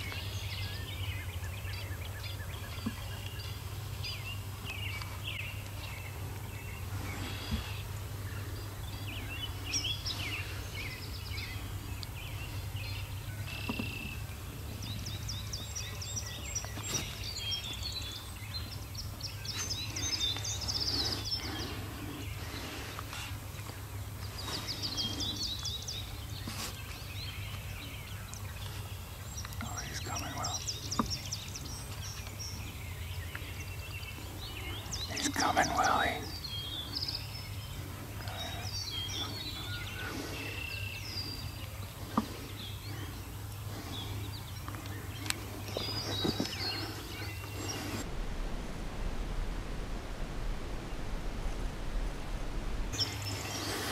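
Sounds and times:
songbirds singing trilled songs: 0.0 - 48.1, 52.9 - 53.9
low background rumble: 27.1 - 53.6.

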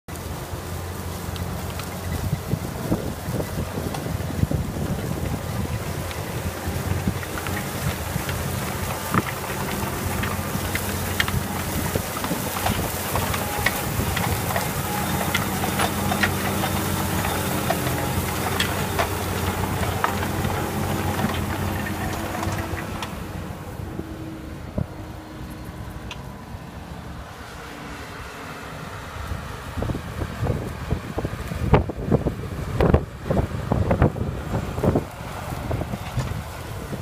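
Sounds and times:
tractor diesel engine under load: 0.1 - 37.0
cultivator clicks and knocks: 5.2 - 23.3.

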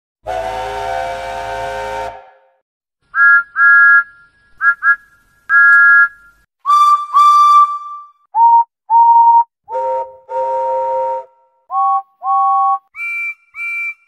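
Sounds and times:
steam locomotive whistles tooting: 0.2 - 2.6, 9.0 - 14.0.

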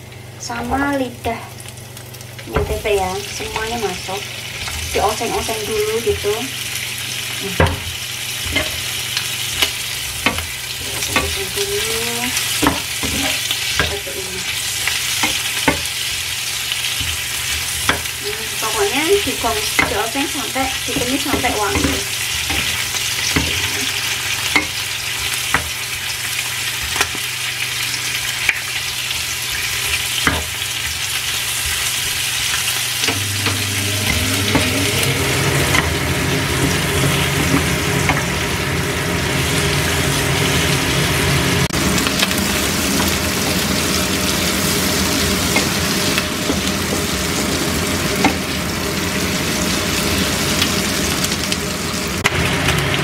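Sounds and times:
food sizzling in oil: 0.0 - 53.0
low steady hum: 28.4 - 49.3.

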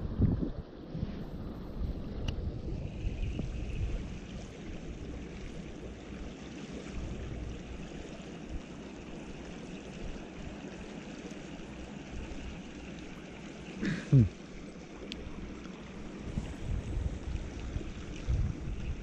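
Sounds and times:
wind rumble on microphone: 0.0 - 10.7, 15.2 - 19.0
creek water rushing: 2.5 - 19.0.

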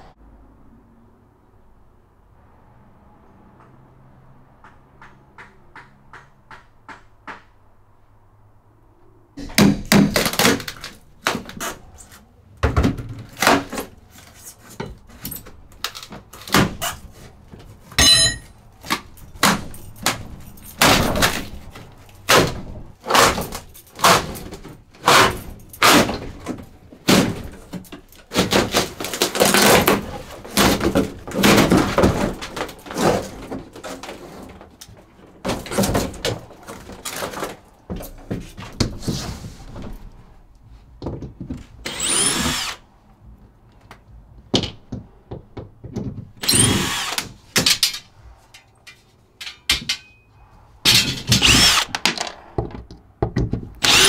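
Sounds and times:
wall paneling knocks and cracks: 9.4 - 11.8, 12.6 - 17.9, 18.8 - 40.2, 41.0 - 41.8, 44.4 - 46.4, 50.9 - 53.8
high metallic ring: 18.0 - 18.6.

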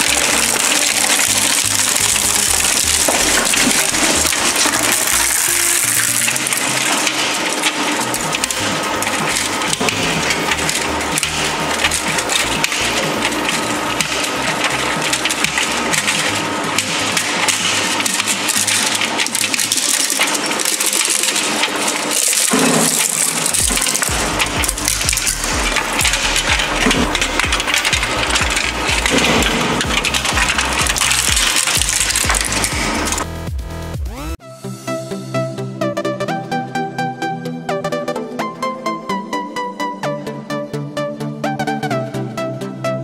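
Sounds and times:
plastic cracking and snapping: 0.0 - 33.3
shredder grinding electronics: 0.0 - 34.4.

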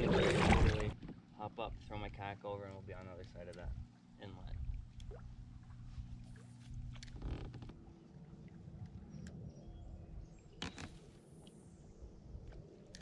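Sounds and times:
water lapping against plastic hull: 0.0 - 9.1.

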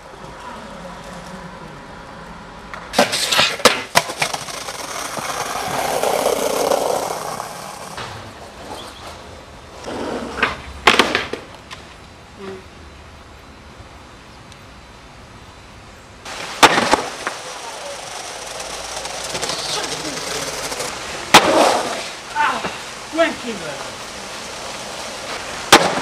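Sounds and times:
skateboard wheels rolling: 0.0 - 12.6, 16.2 - 26.0
skateboard clattering: 2.7 - 11.9, 16.3 - 22.9, 23.8 - 26.0.

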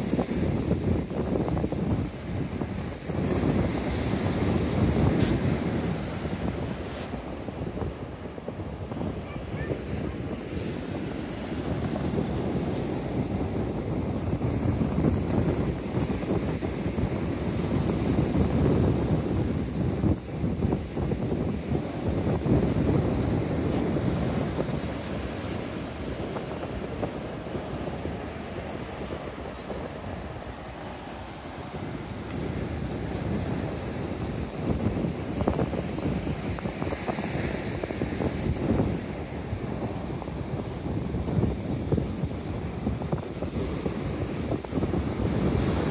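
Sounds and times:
waves breaking on beach: 0.0 - 45.9
wind buffeting microphone: 0.0 - 45.9.

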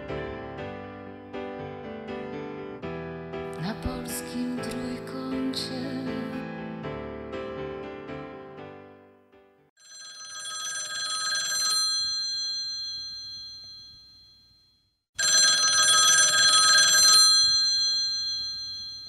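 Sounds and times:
telephone bell ringing: 9.8 - 19.0.

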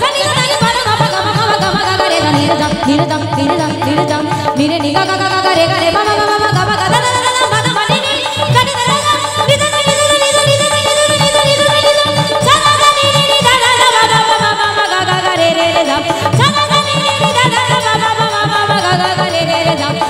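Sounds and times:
hand drum beat: 0.0 - 20.0.

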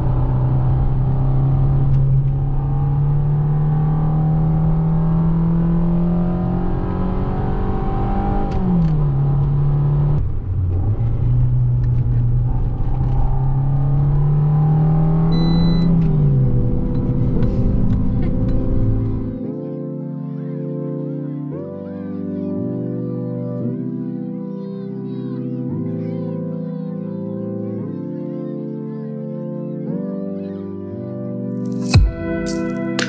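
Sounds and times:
car engine heard from cabin: 0.0 - 19.4.

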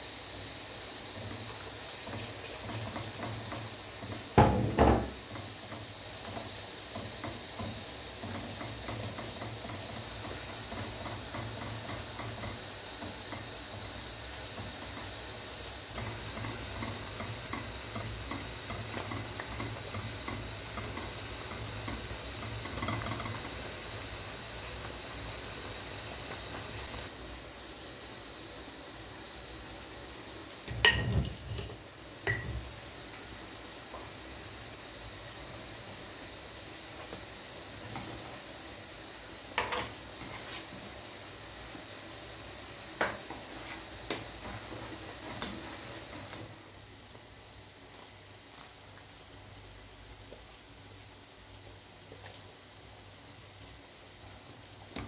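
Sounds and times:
whisk scraping in a pot: 0.8 - 27.1.

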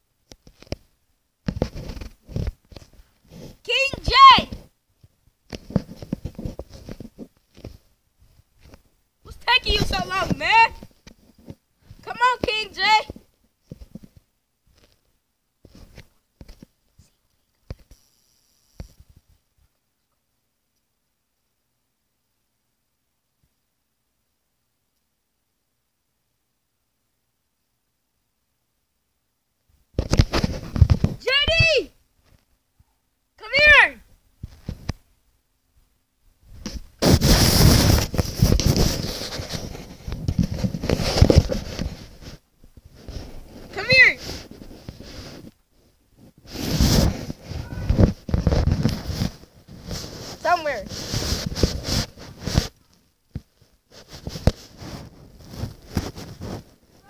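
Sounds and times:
phone microphone handling noise: 0.4 - 3.6, 5.5 - 7.9, 30.0 - 31.2, 36.5 - 45.6, 46.2 - 57.0.

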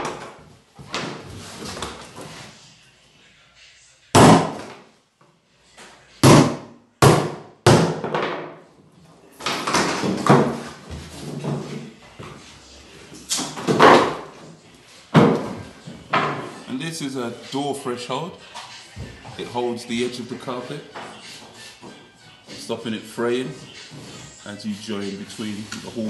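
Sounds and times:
hammer striking nails into wood: 6.2 - 8.5
knocking and scuffing: 9.6 - 16.6.

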